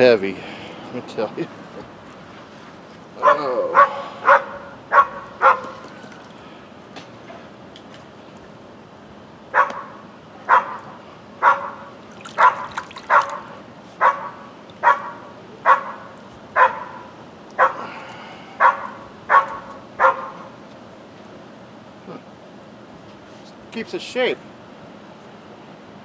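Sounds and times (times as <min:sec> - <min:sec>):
dog barking: 0:03.2 - 0:05.8, 0:09.5 - 0:17.8, 0:18.6 - 0:20.5.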